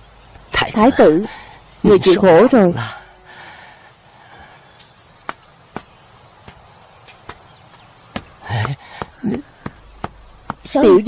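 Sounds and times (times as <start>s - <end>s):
low background hiss: 0.0s - 8.6s.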